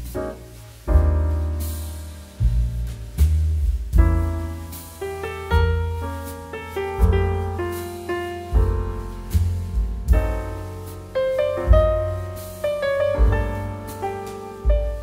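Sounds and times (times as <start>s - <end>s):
deep bass notes: 0.0s - 15.0s
piano chords ringing: 4.0s - 15.0s.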